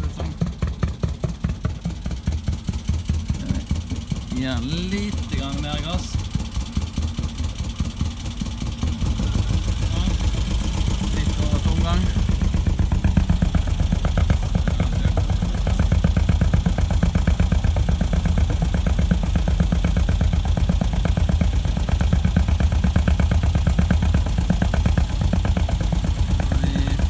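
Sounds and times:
boat engine putting: 0:00.0 - 0:27.0.

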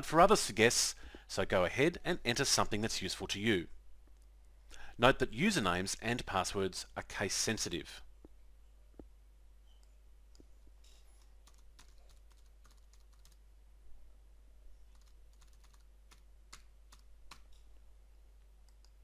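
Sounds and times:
typing on computer keyboard: 0:11.4 - 0:13.4, 0:14.9 - 0:17.5.

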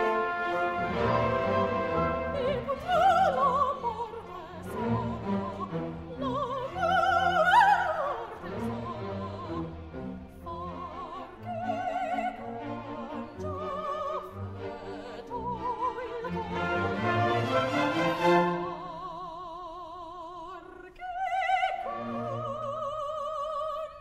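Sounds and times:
orchestral accompaniment: 0:00.0 - 0:19.2
operatic singing: 0:00.0 - 0:24.0.

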